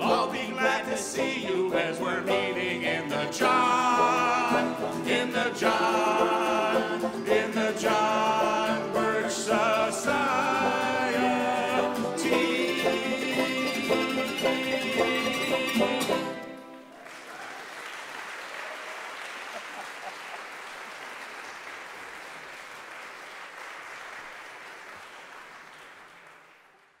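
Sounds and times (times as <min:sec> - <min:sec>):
acoustic string band: 0:00.0 - 0:16.9
audience applause: 0:16.7 - 0:27.0.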